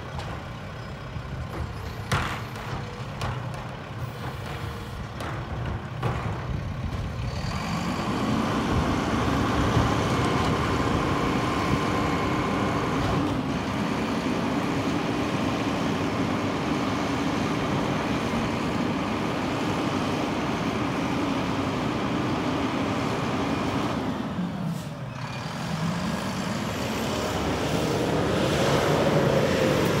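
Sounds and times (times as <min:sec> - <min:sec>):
engine revving up: 0:25.4 - 0:30.0.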